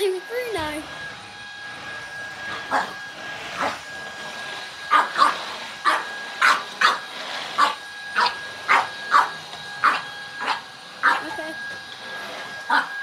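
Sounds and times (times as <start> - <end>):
vacuum motor whine: 0.0 - 13.0
puppy barking: 2.7 - 3.0, 4.9 - 7.0, 7.6 - 11.3, 12.7 - 12.9.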